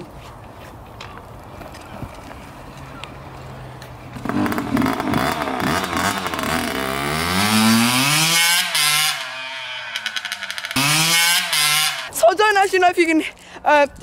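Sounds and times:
two-stroke engine revving: 4.2s - 12.1s.

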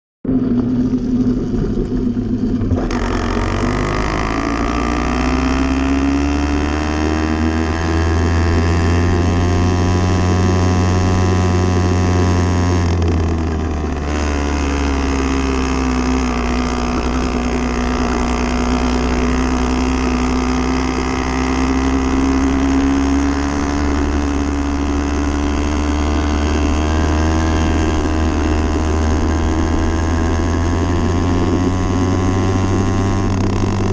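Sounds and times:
motorbike engine running: 0.3s - 33.9s.

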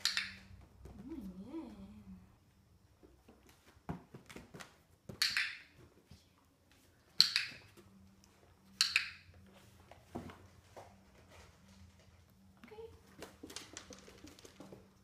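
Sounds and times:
dog-training clicker clicking: 7.2s - 7.6s, 8.8s - 9.2s.

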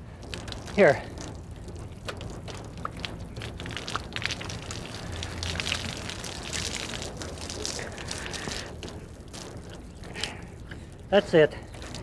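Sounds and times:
water drops pattering on stone: 0.2s - 12.0s
towel being wrung out: 2.0s - 11.0s.

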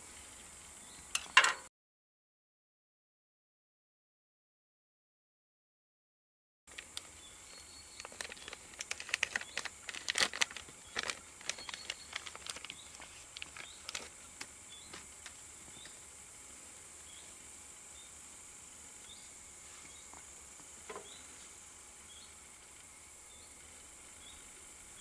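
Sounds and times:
plastic bag crinkling: 7.9s - 14.2s.

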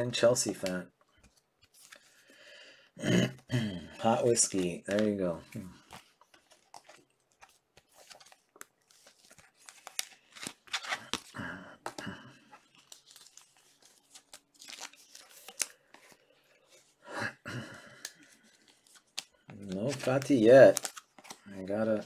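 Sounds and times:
cards clicking and sliding: 4.4s - 12.0s
wrapper crinkling and tearing: 12.7s - 15.9s, 18.9s - 21.8s.

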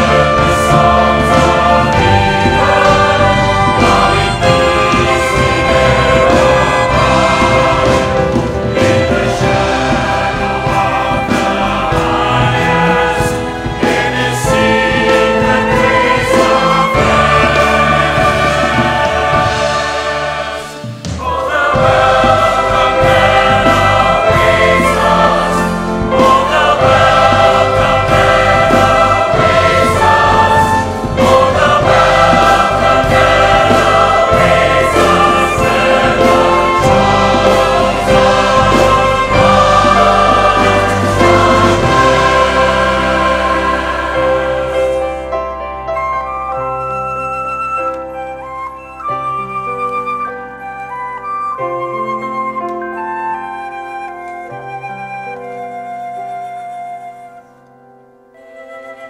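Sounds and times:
choir singing a hymn: 0.0s - 46.0s
string ensemble: 0.0s - 49.0s.

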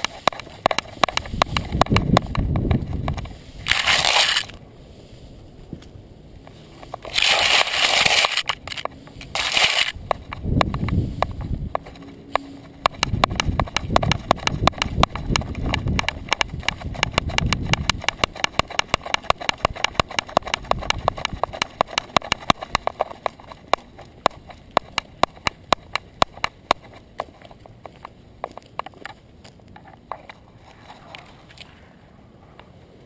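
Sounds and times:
dog claws clicking while trotting: 0.0s - 3.3s, 7.0s - 29.2s.

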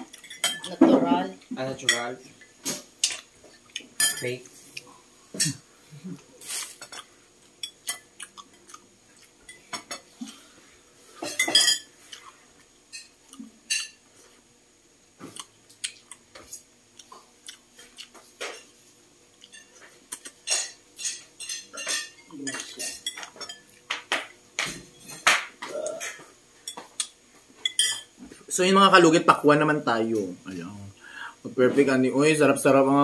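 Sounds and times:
spoon and dishes clinking: 0.1s - 1.2s, 4.0s - 4.4s, 11.2s - 11.9s, 12.9s - 14.0s, 19.5s - 28.1s
chewing: 7.7s - 9.4s, 15.2s - 18.3s.

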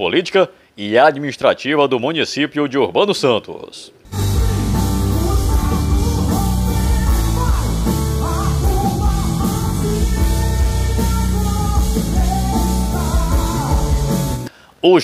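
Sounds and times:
electric guitar: 4.1s - 14.5s
pop-rock band playing: 4.1s - 14.5s
man singing: 4.3s - 14.5s.

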